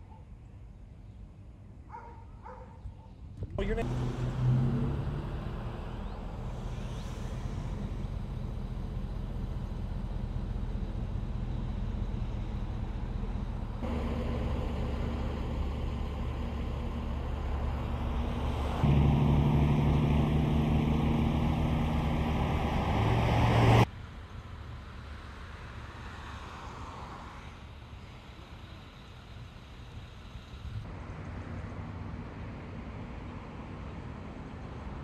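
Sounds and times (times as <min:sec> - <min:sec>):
outdoor wind noise: 0:00.0 - 0:35.0
diesel engine idling: 0:03.7 - 0:25.0.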